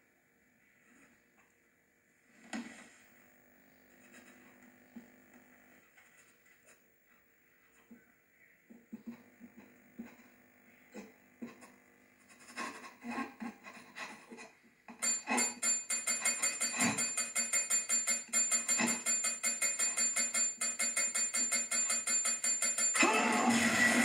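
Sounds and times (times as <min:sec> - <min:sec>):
call bell dinging: 0:14.9 - 0:23.4.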